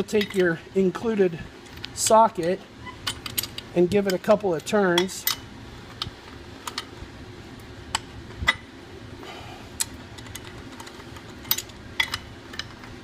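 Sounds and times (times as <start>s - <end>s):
metallic clicks and clinks: 9.8s - 12.9s.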